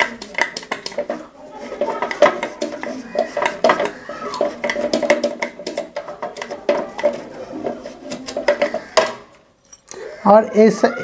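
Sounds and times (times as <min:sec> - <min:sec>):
small parts clicking and rattling: 0:00.0 - 0:10.0.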